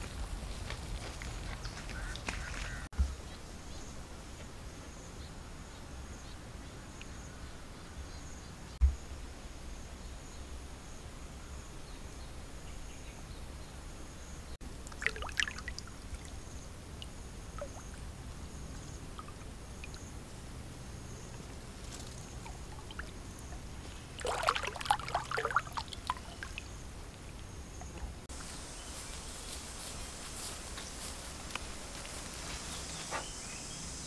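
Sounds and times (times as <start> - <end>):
fish splashing in shallow water: 14.8 - 20.1, 21.3 - 27.9.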